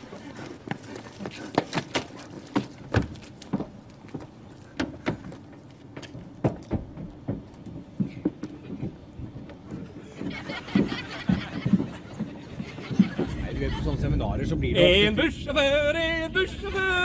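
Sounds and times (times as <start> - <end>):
hard-soled footsteps on pavement: 0.0 - 13.9.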